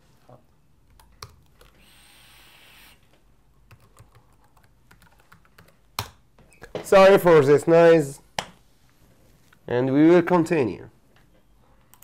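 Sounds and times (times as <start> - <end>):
laptop keyboard typing: 3.7 - 6.2.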